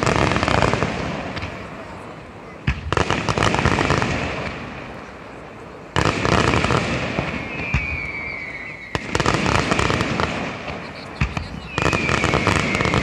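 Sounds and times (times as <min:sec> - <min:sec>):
fireworks bangs and crackling: 0:00.0 - 0:13.0
firework falling whistle: 0:07.0 - 0:13.0.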